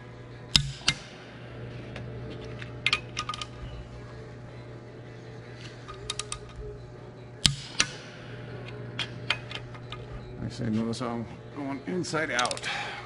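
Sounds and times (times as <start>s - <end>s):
steady low hum: 0.0s - 13.0s
torque wrench clicks: 5.8s - 6.6s.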